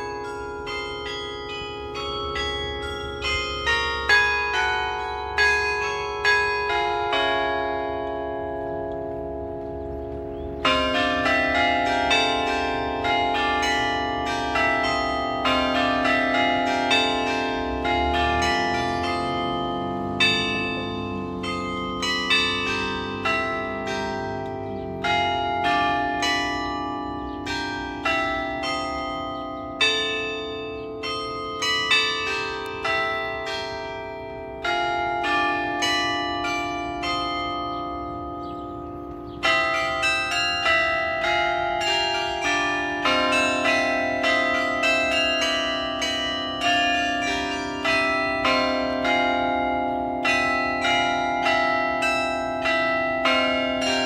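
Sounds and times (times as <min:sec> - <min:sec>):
carillon bells playing a melody: 0:00.0 - 0:54.0.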